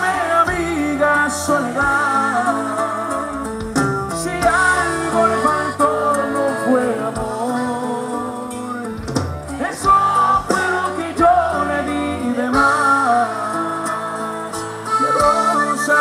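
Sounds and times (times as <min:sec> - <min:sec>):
band playing: 0:00.0 - 0:16.0
man singing: 0:00.0 - 0:16.0
strummed twelve-string guitar: 0:00.0 - 0:16.0.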